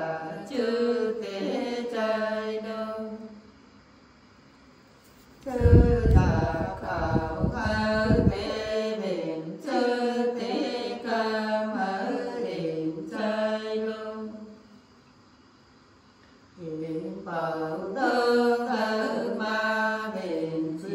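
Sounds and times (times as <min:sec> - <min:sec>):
women singing unaccompanied: 0:00.0 - 0:03.4, 0:05.4 - 0:14.7, 0:16.6 - 0:20.9
low rumble: 0:05.5 - 0:08.7.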